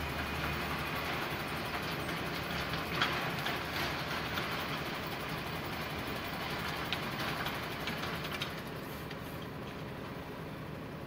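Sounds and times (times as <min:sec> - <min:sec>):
diesel engine idling: 0:00.0 - 0:11.0.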